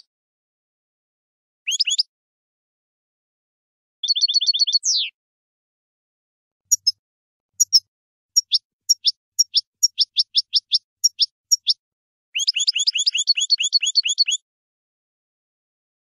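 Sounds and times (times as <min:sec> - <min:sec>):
goldfinch singing: 0:01.7 - 0:02.1, 0:04.0 - 0:05.2, 0:06.7 - 0:07.0, 0:07.6 - 0:07.8, 0:08.4 - 0:11.8, 0:12.4 - 0:14.4.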